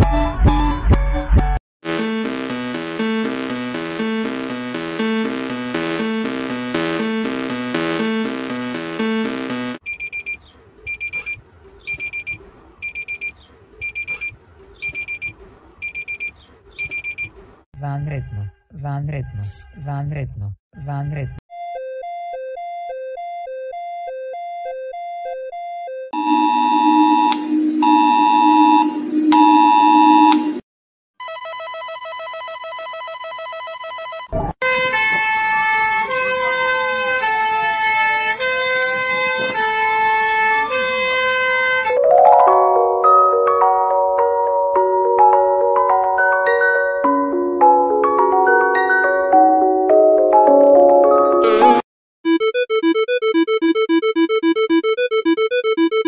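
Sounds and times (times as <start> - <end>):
alarm clock beeping: 2.2 - 17.3, 21.5 - 30.4, 51.5 - 56.0
sliding siren tone: 26.2 - 30.6.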